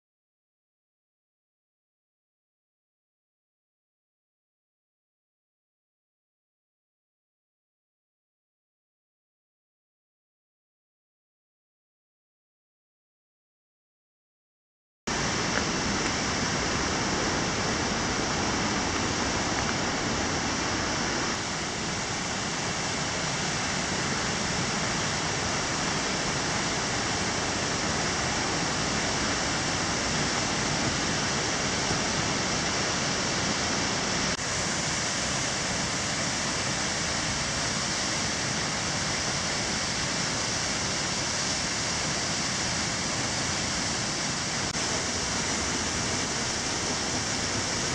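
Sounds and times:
waterfall rushing: 15.1s - 47.9s.

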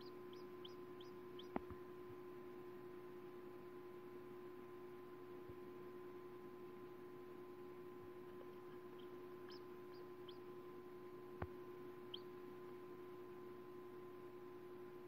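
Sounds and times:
chick peeping: 0.0s - 1.7s, 8.2s - 10.5s, 12.1s - 12.4s
steady low hum: 0.0s - 15.0s.

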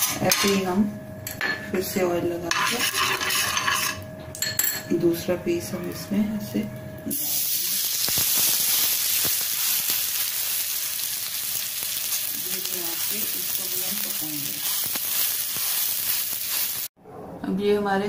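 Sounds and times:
bread frying in oil sizzling: 7.1s - 17.0s.

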